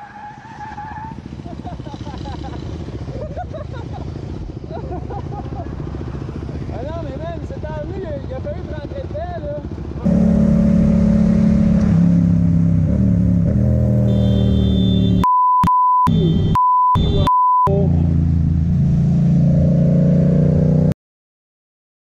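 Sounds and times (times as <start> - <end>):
vehicle engine running: 9.8 - 15.2
high censor bleeps: 14.1 - 17.7.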